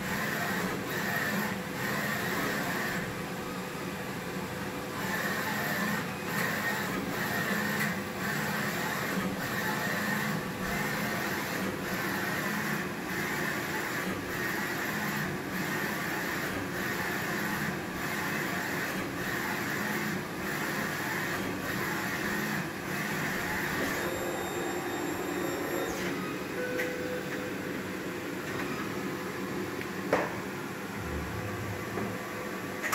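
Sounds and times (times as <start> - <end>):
steady printer whirring: 0.0 - 32.9.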